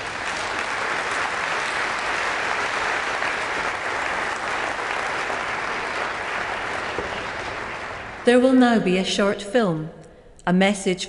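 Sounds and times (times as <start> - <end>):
large audience applauding: 0.0 - 8.3.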